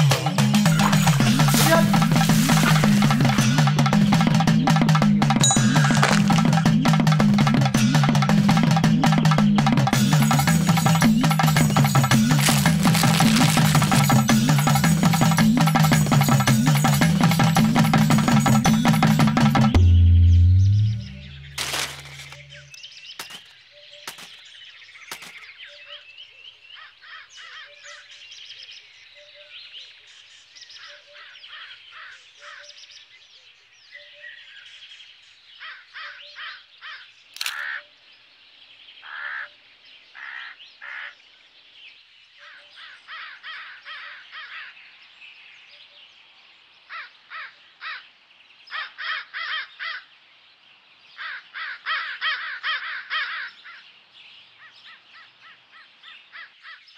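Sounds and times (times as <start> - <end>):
birds chirping: 0.0 - 56.9
crows cawing: 26.8 - 28.0, 30.8 - 32.8, 35.6 - 37.9, 39.0 - 41.3, 42.4 - 44.8, 46.9 - 48.1, 48.7 - 50.1, 51.1 - 53.9, 54.6 - 56.9
camera shutter click: 37.4 - 37.7.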